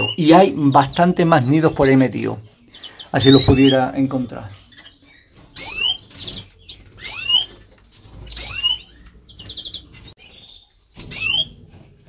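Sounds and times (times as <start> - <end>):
finches chirping: 0.0 - 11.6
fast bird trills: 4.6 - 11.6.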